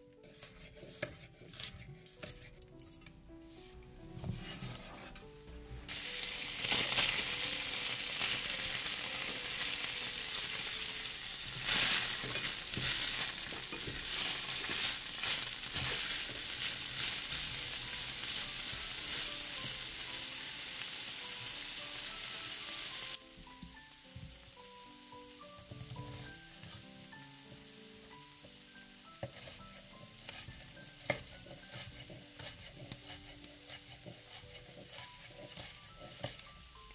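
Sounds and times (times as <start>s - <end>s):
soft background music: 0.0s - 36.9s
stirring knocks and scrapes: 0.2s - 5.9s, 11.5s - 19.8s, 25.7s - 26.9s, 29.1s - 36.9s
food sizzling in hot oil: 5.9s - 36.9s.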